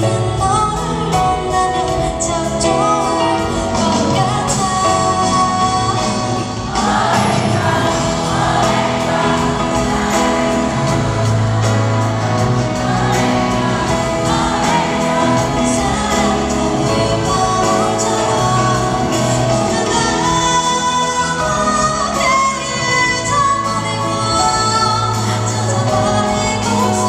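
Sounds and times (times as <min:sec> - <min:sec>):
live band playing: 0:00.0 - 0:27.0
woman singing pop song live: 0:00.0 - 0:27.0.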